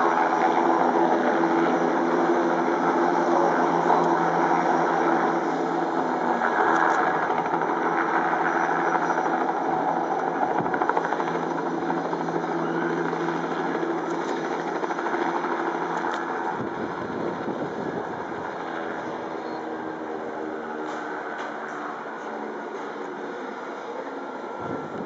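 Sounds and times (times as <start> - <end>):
helicopter engine running: 0.0 - 25.0
helicopter rotor beating: 0.0 - 25.0.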